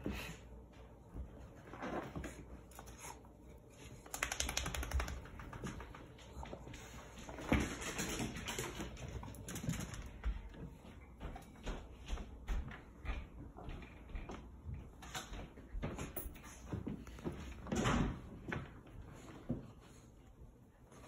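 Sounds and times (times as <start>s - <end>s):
fast run of clicks: 4.1s - 6.0s.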